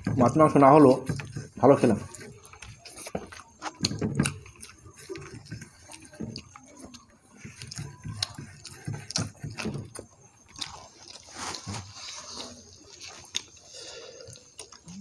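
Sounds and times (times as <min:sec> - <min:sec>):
chewing and wet mouth sounds: 0:00.0 - 0:15.0
rice mixed by hand: 0:06.2 - 0:14.2.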